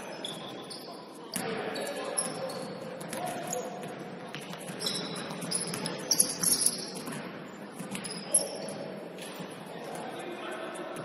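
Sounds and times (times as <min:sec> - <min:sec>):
shoes squeaking on gym floor: 0:00.0 - 0:01.0, 0:04.7 - 0:07.2, 0:07.9 - 0:08.8
gym background noise: 0:00.0 - 0:11.0.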